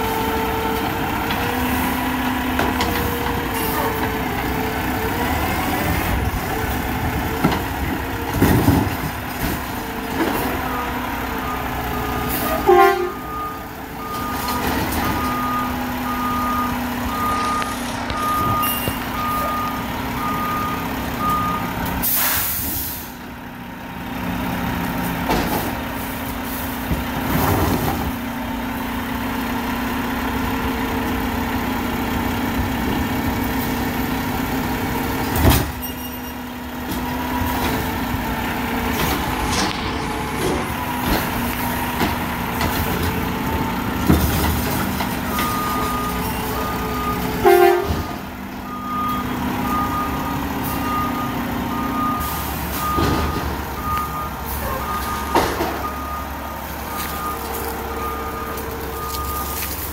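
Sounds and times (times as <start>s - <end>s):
garbage truck engine running: 0.0s - 59.9s
reversing alarm beeps: 13.2s - 21.8s, 45.3s - 47.4s, 48.6s - 59.8s.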